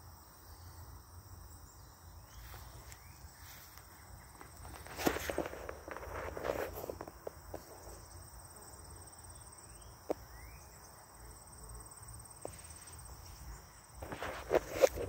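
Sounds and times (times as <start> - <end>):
crickets trilling: 0.0 - 15.0
footsteps through vegetation: 2.3 - 8.0, 12.4 - 15.0.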